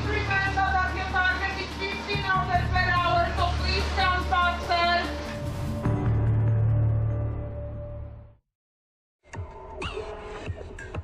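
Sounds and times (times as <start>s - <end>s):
electronic title music: 0.2s - 8.4s.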